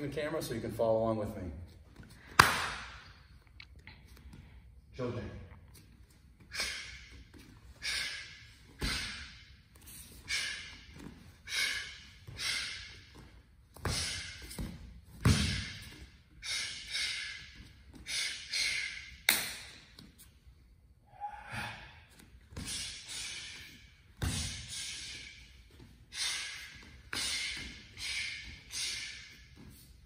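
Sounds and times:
sharp forceful exhalations: 6.5 - 7.1, 7.8 - 9.5, 10.2 - 13.1, 22.6 - 25.5, 26.1 - 29.5.

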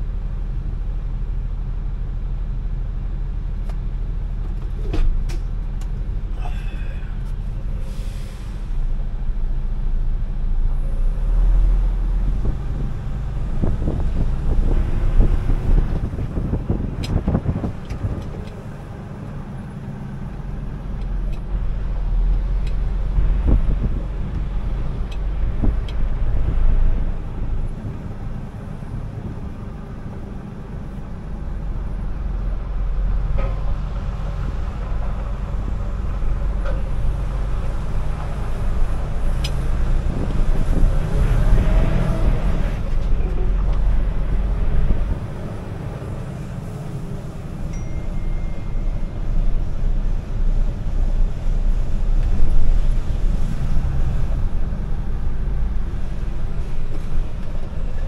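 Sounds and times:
truck engine rumble: 0.0 - 58.0.

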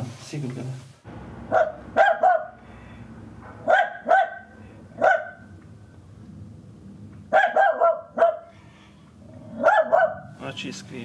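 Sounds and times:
dog barking: 1.5 - 2.6, 3.6 - 5.5, 7.3 - 8.5, 9.6 - 10.4.

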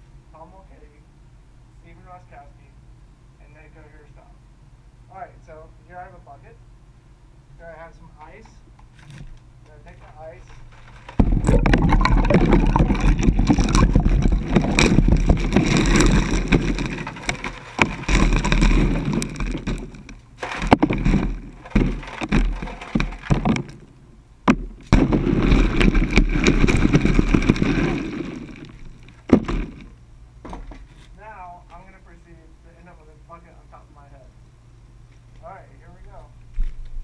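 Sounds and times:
ice cubes clattering into bucket: 10.0 - 23.9, 24.9 - 29.9
ice cubes knocking: 10.8 - 23.8, 25.0 - 29.9.

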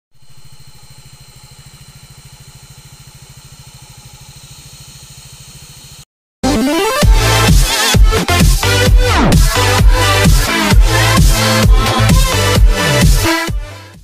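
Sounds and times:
engine idling: 0.2 - 6.0
electronic dance music: 6.4 - 14.0.

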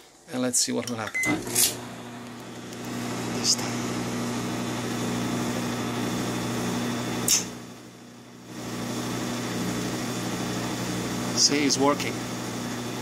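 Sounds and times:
dryer motor humming: 0.9 - 13.0
sharp click: 7.3 - 7.5.

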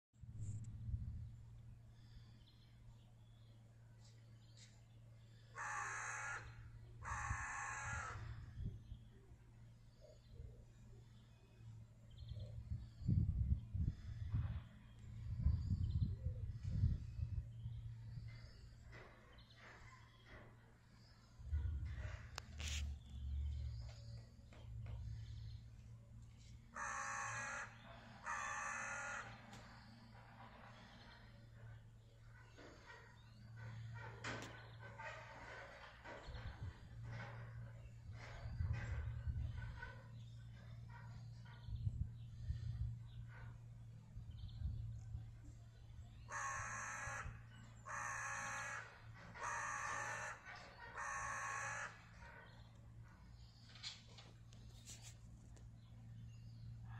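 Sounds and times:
crow cawing: 5.3 - 8.4, 26.7 - 29.6, 46.2 - 52.3.

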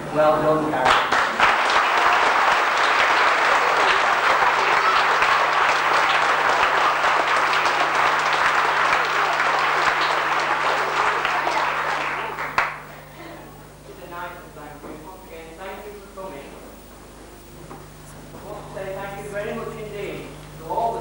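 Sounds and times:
audience applauding: 0.8 - 13.1.

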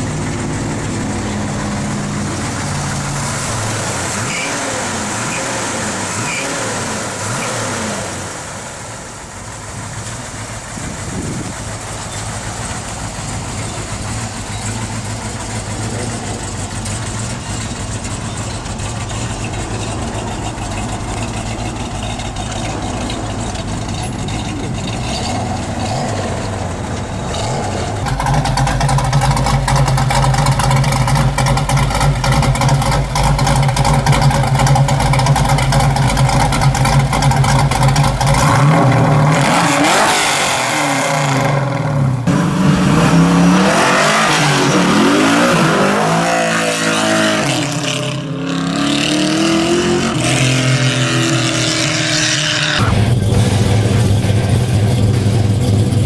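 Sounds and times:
race car engine idling lumpily: 0.0 - 6.0, 8.4 - 39.4, 52.8 - 56.0
car engine idling: 0.0 - 56.0.

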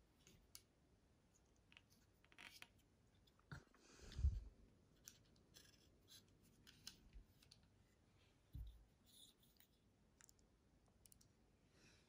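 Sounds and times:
small clicks of handling model: 1.4 - 3.5, 4.9 - 7.8.

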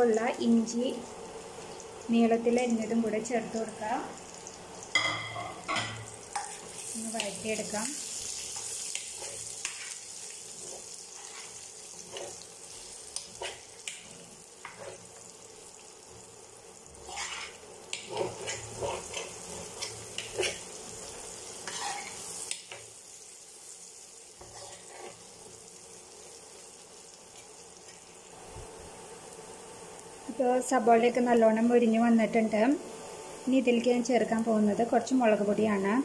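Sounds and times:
onions sizzling in hot oil: 0.0 - 36.0
steel spoon scraping a pan: 8.5 - 12.4, 14.6 - 15.1, 17.0 - 22.4, 24.4 - 25.2.

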